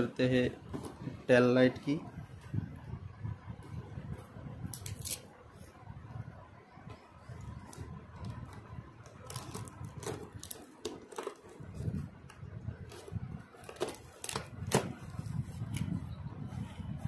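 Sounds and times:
cardboard cracking: 9.1s - 12.1s, 12.8s - 15.9s.

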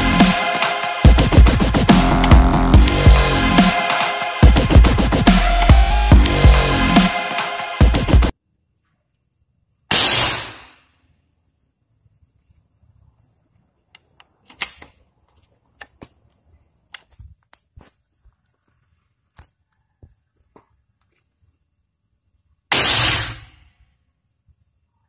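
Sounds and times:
air rifle shot: 9.9s - 10.8s, 22.7s - 23.6s.

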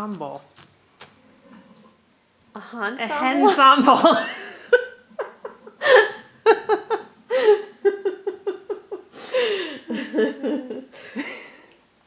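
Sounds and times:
person laughing: 4.0s - 11.7s.

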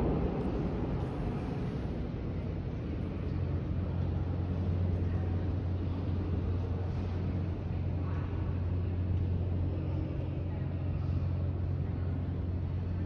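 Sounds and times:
subway station hum: 0.0s - 13.0s.

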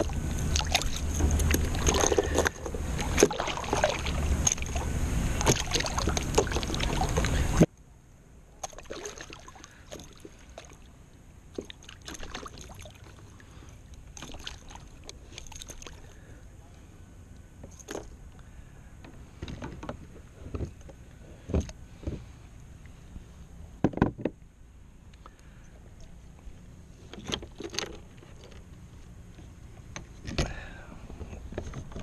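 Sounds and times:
small water splashes: 0.0s - 7.7s, 8.6s - 10.9s, 11.5s - 16.3s.

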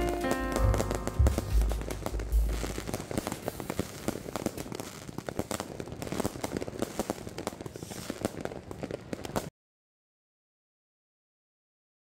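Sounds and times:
fireworks crackling and popping: 0.0s - 9.5s.

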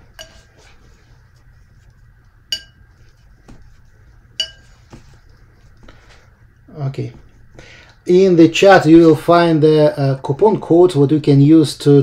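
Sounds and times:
brush scrubbing: 0.0s - 7.6s
paintbrush clinking on palette: 2.5s - 2.9s, 4.4s - 4.8s.

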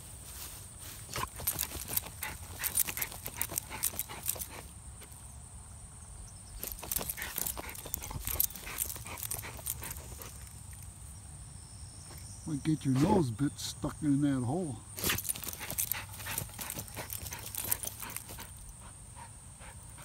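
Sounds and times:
dog snuffling: 0.4s - 4.7s, 6.6s - 10.9s, 15.0s - 20.0s
dog scratching and scraping earth: 0.9s - 4.7s, 6.6s - 10.9s, 15.0s - 20.0s.

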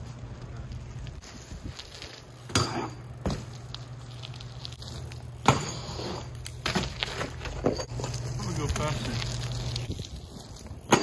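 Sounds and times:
bike landing on concrete: 0.0s - 11.0s.

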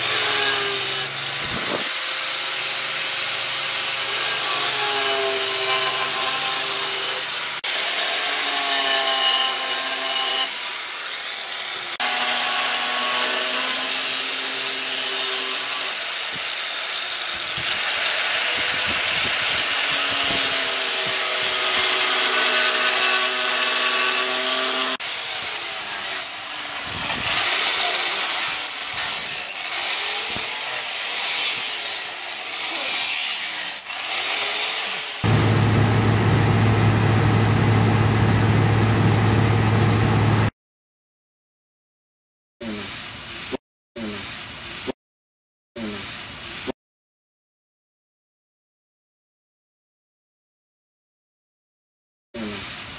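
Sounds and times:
angle grinder grinding steel: 0.0s - 38.2s.

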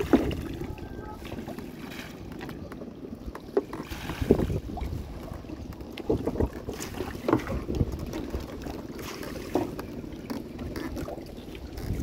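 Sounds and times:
water splashing against boat: 0.0s - 12.0s.

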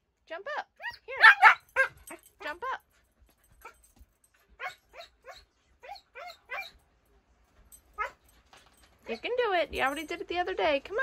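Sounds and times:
puppy whining and yipping: 4.6s - 6.8s, 8.0s - 8.2s.

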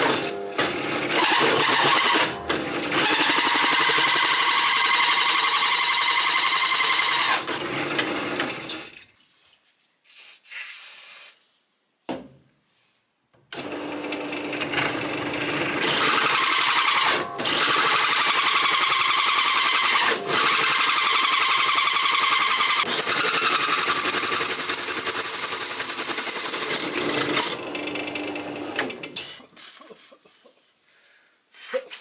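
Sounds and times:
power tool on steel plate: 0.0s - 8.9s, 26.2s - 29.4s.

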